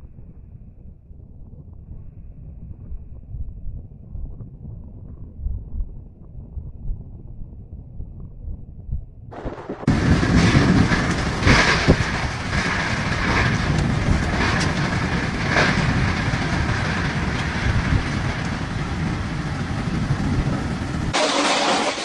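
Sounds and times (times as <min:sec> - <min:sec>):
rain: 0:09.3 - 0:22.0
storm wind gusting: 0:09.3 - 0:22.0.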